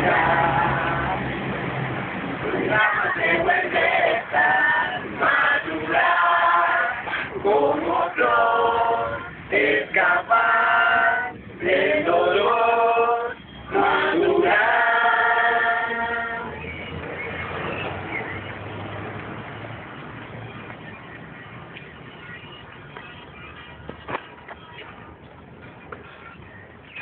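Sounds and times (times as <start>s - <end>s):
mixed choir singing: 0.0s - 1.8s, 2.4s - 16.6s.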